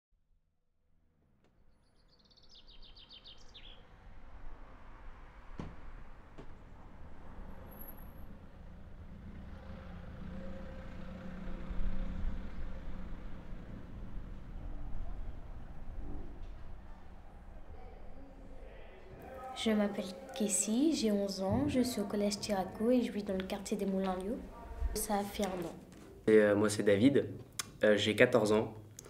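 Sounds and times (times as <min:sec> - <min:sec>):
bird chirping: 0:01.7 - 0:03.9
traffic rumble: 0:02.7 - 0:29.0
engine hum: 0:02.9 - 0:20.3.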